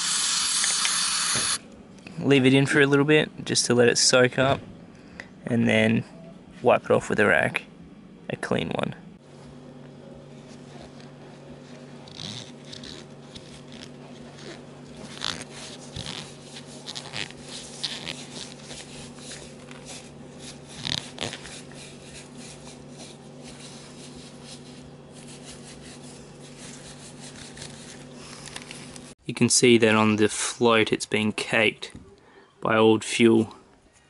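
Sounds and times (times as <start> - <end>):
steady low hum: 0.0 - 34.0
cloth rag rubbing metal parts: 10.3 - 29.0.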